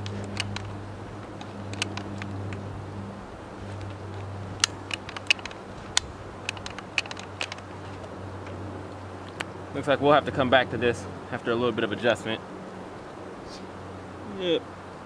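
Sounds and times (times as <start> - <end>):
rifle action clicking and clacking: 0.0 - 2.7, 3.8 - 8.1
low steady hum: 0.0 - 15.0.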